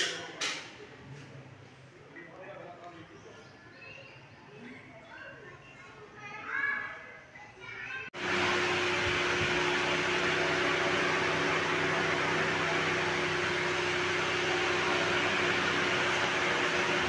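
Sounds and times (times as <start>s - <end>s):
machine hum with hiss: 8.2s - 17.0s.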